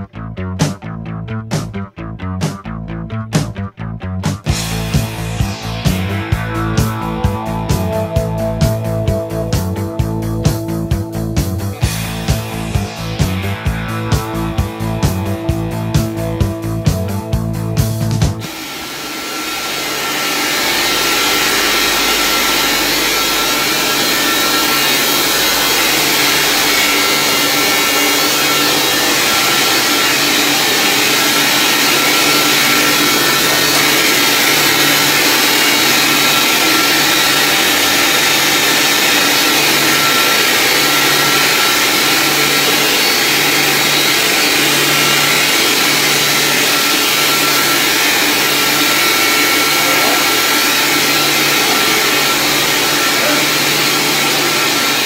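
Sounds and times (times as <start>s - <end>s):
electric pumps whirring: 4.4s - 55.0s.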